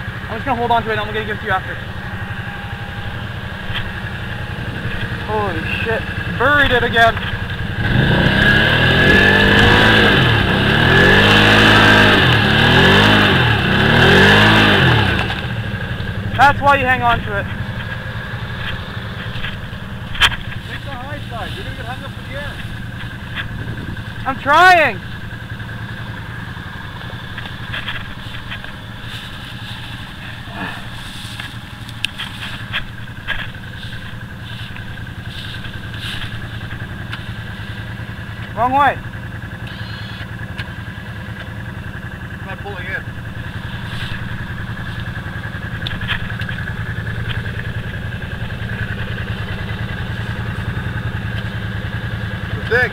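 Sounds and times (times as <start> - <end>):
quad engine revving: 0.0 - 52.9
sharp clicks: 39.5 - 40.8, 43.4 - 51.6.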